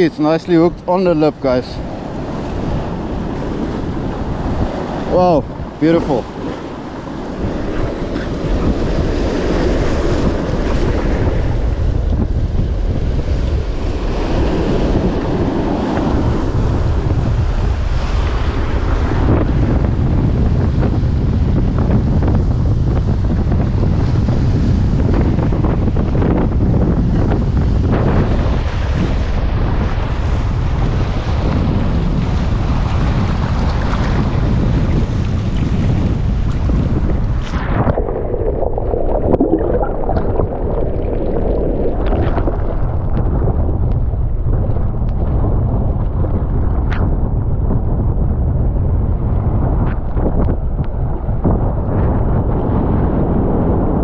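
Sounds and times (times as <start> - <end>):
surf washing over rocks: 0.0 - 20.0, 23.4 - 46.6
wind buffeting the microphone: 0.0 - 54.0
surf breaking on rocks: 36.1 - 44.2.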